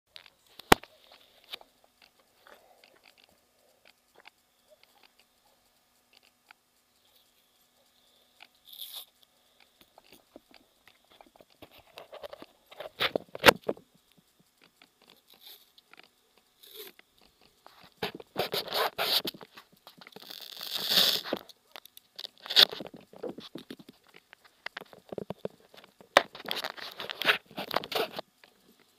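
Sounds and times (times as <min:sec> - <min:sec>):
clothing rubbing on microphone: 0:16.6 - 0:21.5, 0:22.3 - 0:28.7.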